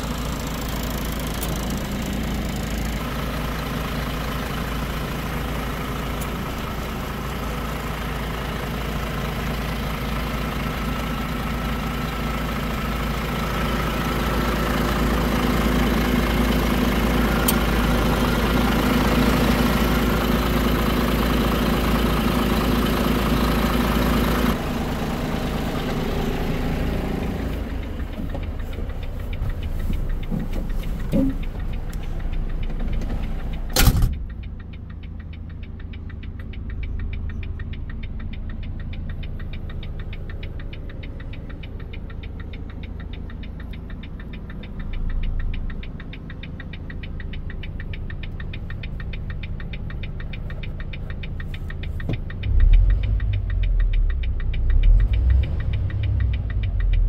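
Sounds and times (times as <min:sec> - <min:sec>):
diesel truck engine idling: 0:00.0 - 0:57.0
door slamming: 0:33.8 - 0:34.2.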